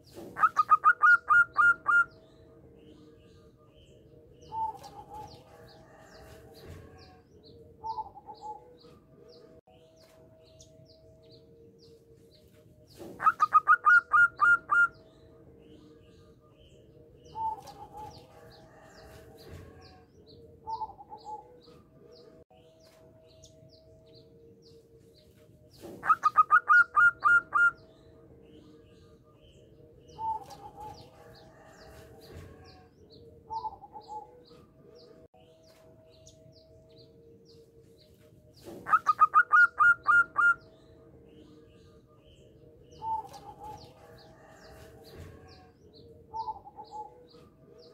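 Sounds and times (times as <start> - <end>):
dove staccato cooing: 0.0 - 2.1, 4.4 - 7.2, 13.0 - 15.0, 17.3 - 21.7, 25.8 - 27.8, 30.1 - 32.9, 38.6 - 40.6, 42.9 - 47.9
soft dove coos: 17.3 - 21.9, 25.8 - 27.8, 30.1 - 32.9, 38.6 - 40.6, 43.0 - 45.7, 46.3 - 47.9.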